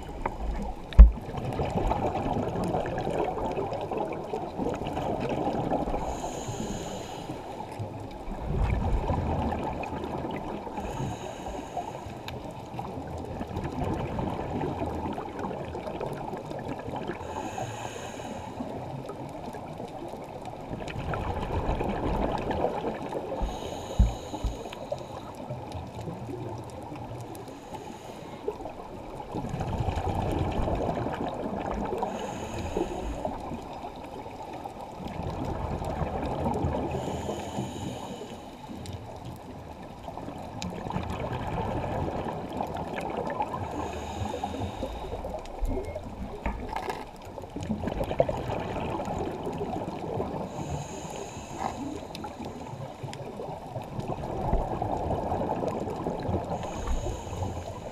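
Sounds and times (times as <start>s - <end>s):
gurgling exhaled bubbles: 0.0s - 6.8s, 7.8s - 11.4s, 12.7s - 17.4s, 18.8s - 27.3s, 28.5s - 38.1s, 39.0s - 57.9s
regulator hiss underwater: 5.9s - 7.7s, 10.7s - 12.3s, 17.2s - 18.7s, 23.2s - 25.4s, 31.9s - 33.6s, 36.8s - 38.9s, 43.6s - 45.4s, 50.2s - 53.0s, 56.5s - 57.9s.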